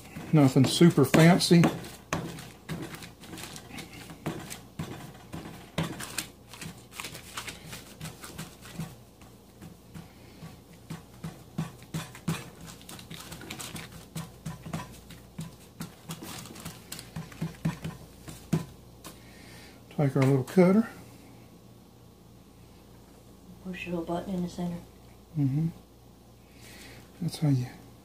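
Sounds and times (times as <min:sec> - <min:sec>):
hands patting dough: 0:00.0 - 0:19.2
paper rustling: 0:01.0 - 0:09.0, 0:12.1 - 0:18.4.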